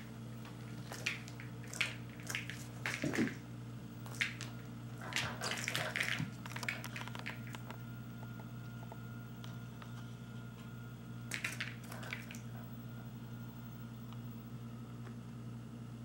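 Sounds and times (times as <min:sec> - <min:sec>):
steady low hum: 0:00.0 - 0:16.0
toy scratchy rustles and taps: 0:05.1 - 0:07.8.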